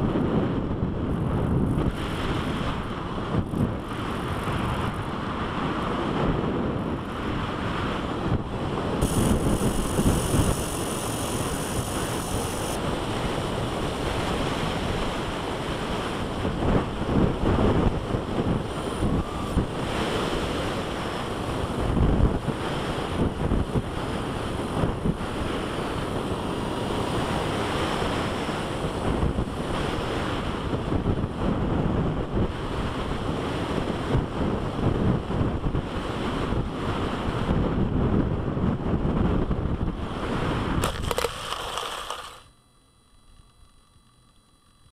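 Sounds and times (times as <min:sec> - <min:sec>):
thin high whine: 0:00.0 - 0:31.4, 0:40.8 - 0:44.9
wind rushing and buffeting: 0:00.0 - 0:42.4.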